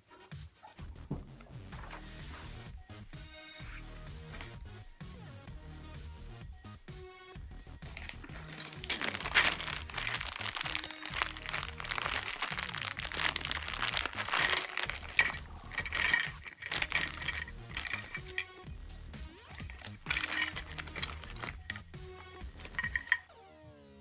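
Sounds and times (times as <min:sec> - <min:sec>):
background music: 0:00.1 - 0:24.0
plastic bag crinkling: 0:07.9 - 0:18.6, 0:19.4 - 0:23.2.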